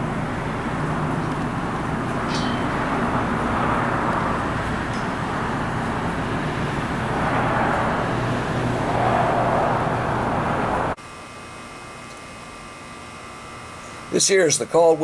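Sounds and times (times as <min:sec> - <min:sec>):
loud outdoor rushing rumble: 0:00.0 - 0:11.0.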